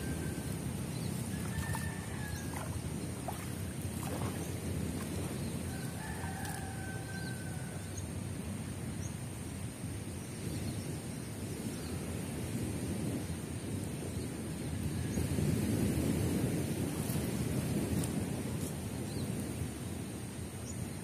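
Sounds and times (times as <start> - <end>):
water sloshing around wading person: 0.0 - 7.0
wind rumble on microphone: 0.0 - 21.0.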